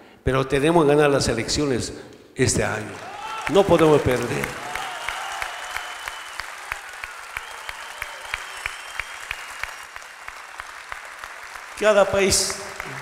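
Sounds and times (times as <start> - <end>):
audience applauding: 2.6 - 13.0
rhythmic clapping: 2.6 - 13.0.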